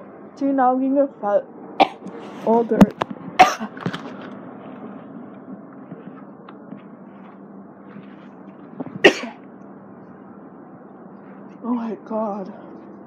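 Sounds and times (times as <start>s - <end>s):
low background hum: 0.0s - 13.0s
woman coughing: 1.8s - 2.1s, 3.4s - 3.8s, 9.0s - 9.4s.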